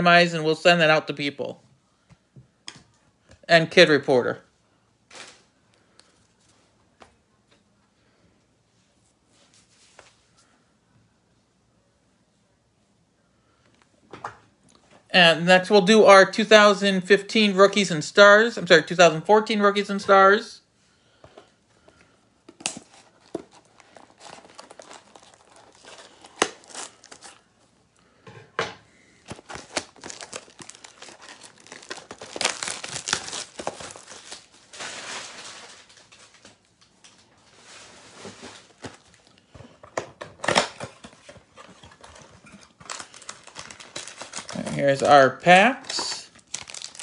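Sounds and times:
wrapping crinkling: 22.5 - 27.6, 29.2 - 39.4, 40.4 - 45.2, 45.8 - 47.0
cardboard tearing: 22.6 - 27.4, 29.4 - 36.0, 46.5 - 47.0.

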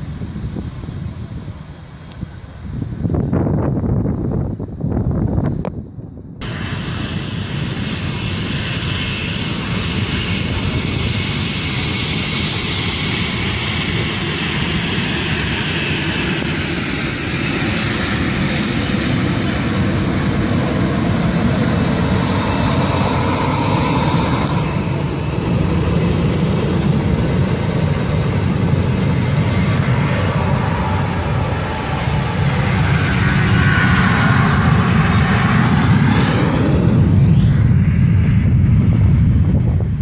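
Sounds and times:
jet engines at takeoff: 0.0 - 40.0
taxiing jet engines: 0.0 - 40.0.

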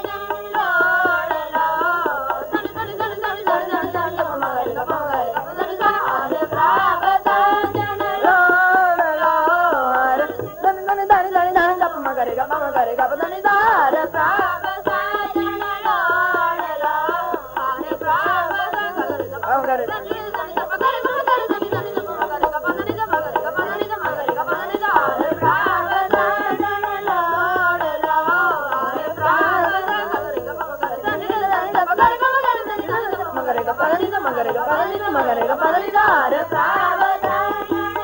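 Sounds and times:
boys singing a hymn: 0.0 - 38.0
harmonium: 0.0 - 38.0
tabla drumming: 0.0 - 38.0.

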